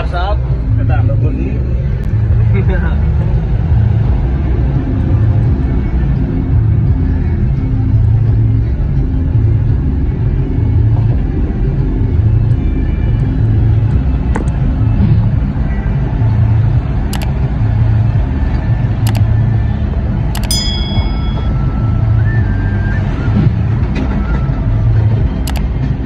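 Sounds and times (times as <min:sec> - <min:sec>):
vehicle engine and road rumble: 0:00.0 - 0:26.0
brief clicks: 0:20.4 - 0:20.6, 0:25.5 - 0:25.7.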